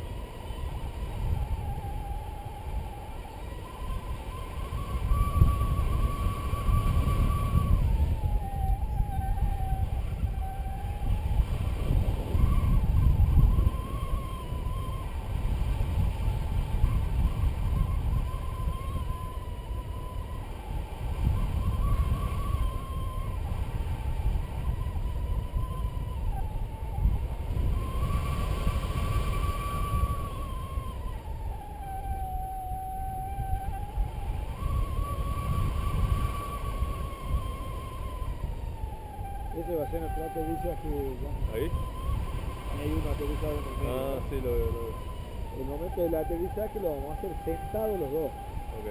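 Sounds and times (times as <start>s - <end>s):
wind rushing over microphone: 0.0s - 48.9s
variometer electronic tone: 27.5s - 48.9s.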